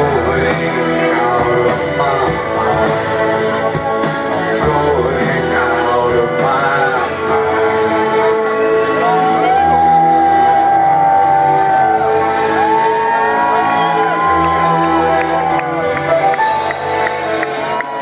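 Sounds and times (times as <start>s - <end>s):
live band music over pa: 0.0s - 18.0s.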